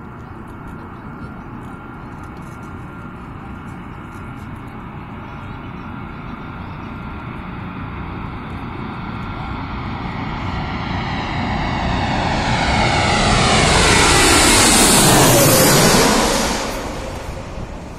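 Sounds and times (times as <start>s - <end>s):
jet engines on approach: 0.0s - 17.9s.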